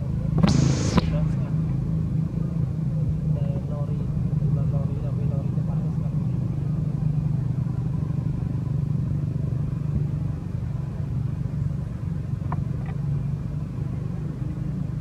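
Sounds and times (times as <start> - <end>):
motor droning: 0.4 - 1.7
short higher sounds: 0.4 - 1.8.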